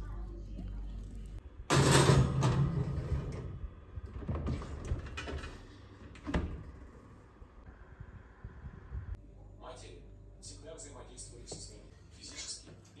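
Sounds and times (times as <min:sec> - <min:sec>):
metal pan clattering on rack: 0:01.7 - 0:03.5
oven door closing: 0:01.7 - 0:03.6.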